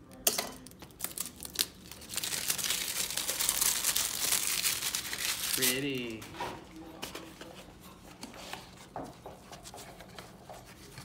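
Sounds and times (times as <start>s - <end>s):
plastic packaging crinkling: 0.6s - 6.3s.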